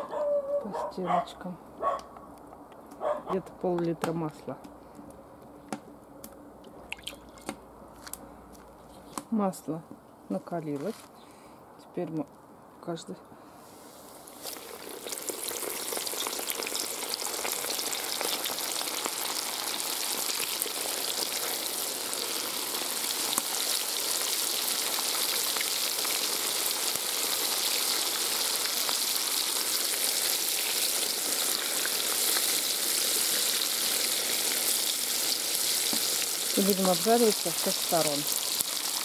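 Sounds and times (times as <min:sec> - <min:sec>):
fish sizzling in hot oil: 0:14.0 - 0:39.0.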